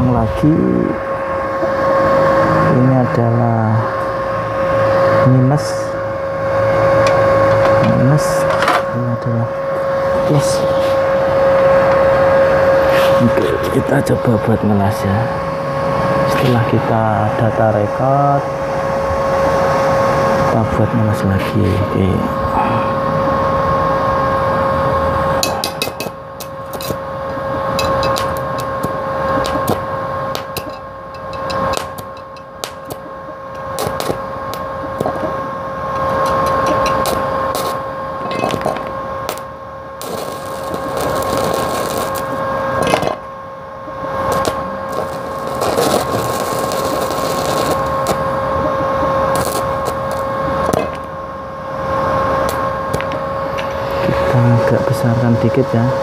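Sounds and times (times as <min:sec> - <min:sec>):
steady high whine: 0:00.0 - 0:56.0
welding arc crackling: 0:25.4 - 0:43.1, 0:43.9 - 0:51.2, 0:52.3 - 0:54.6.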